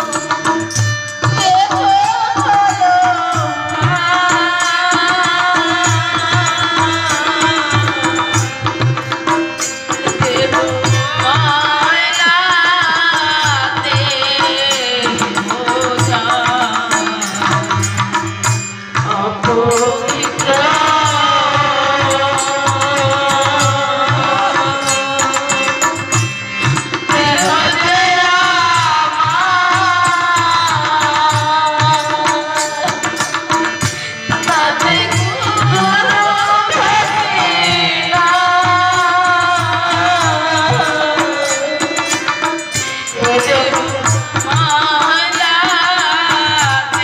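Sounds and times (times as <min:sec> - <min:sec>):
harmonium chords: 0:00.0 - 0:47.0
second singer singing: 0:00.0 - 0:47.0
woman singing: 0:01.2 - 0:18.2, 0:19.0 - 0:26.1, 0:27.1 - 0:47.0
hand drum beat: 0:29.4 - 0:47.0.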